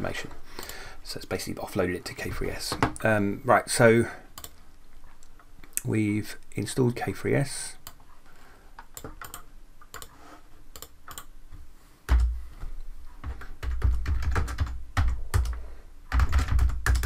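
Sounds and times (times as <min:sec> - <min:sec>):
typing on computer keyboard: 0:09.0 - 0:10.1, 0:10.7 - 0:11.3, 0:13.2 - 0:17.0.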